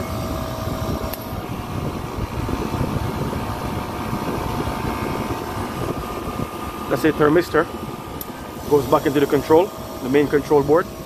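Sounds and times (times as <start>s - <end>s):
compressor running steadily: 0.0s - 11.0s
valve click: 1.0s - 1.3s, 8.2s - 9.3s.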